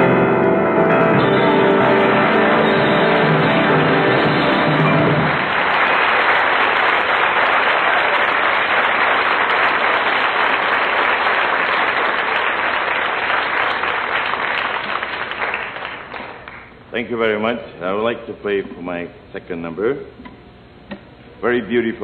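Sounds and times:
studio audience applauding: 0:02.2 - 0:16.7.

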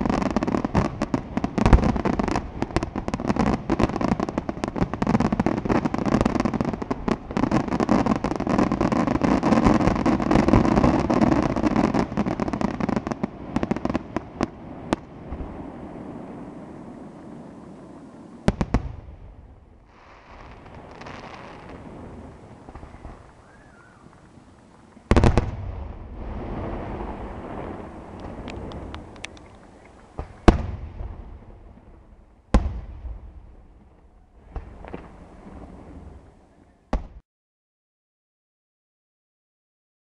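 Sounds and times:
fireworks bangs and crackle: 0:00.0 - 0:37.2.

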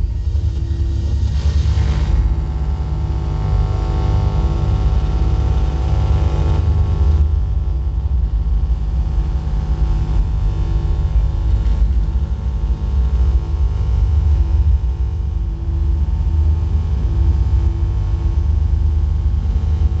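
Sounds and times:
deep bass drone: 0:00.0 - 0:20.0
steady humming tones: 0:00.0 - 0:20.0.

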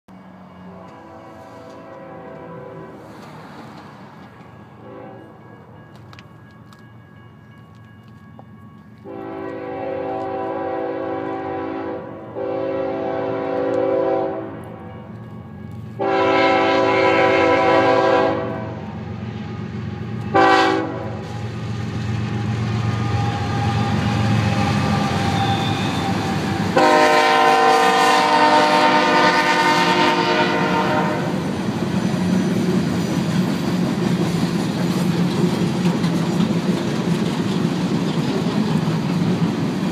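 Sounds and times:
train air horn blasts: 0:00.7 - 0:03.2, 0:04.8 - 0:05.4, 0:09.0 - 0:14.9, 0:16.0 - 0:19.0, 0:20.3 - 0:21.5, 0:23.0 - 0:31.5
freight cars clickety-clack: 0:01.6 - 0:04.7, 0:29.8 - 0:39.9
diesel engines rumbling: 0:12.0 - 0:39.9.

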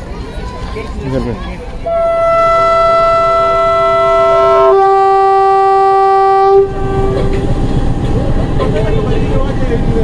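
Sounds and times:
locomotive air horn blast: 0:01.9 - 0:07.6.

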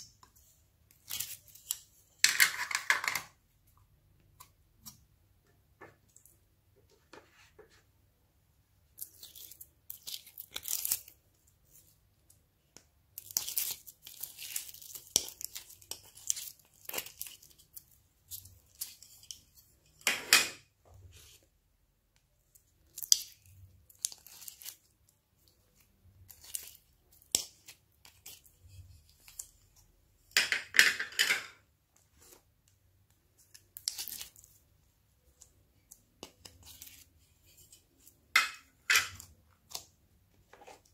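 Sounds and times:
slime crackling and squelching: 0:08.9 - 0:12.3, 0:13.1 - 0:19.5, 0:22.4 - 0:29.9, 0:33.3 - 0:38.3.

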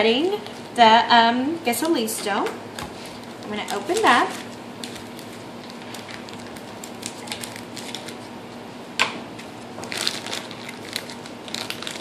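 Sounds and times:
plastic wrapper crinkling: 0:02.8 - 0:08.4, 0:09.4 - 0:12.0
scissors cutting plastic wrapper: 0:03.2 - 0:08.2, 0:09.8 - 0:12.0.

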